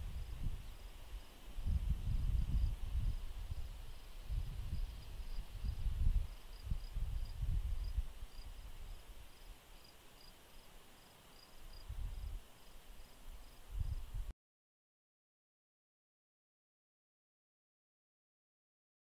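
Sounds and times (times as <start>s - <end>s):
crickets chirping: 0.0s - 14.1s
faint insect hiss: 0.0s - 14.3s.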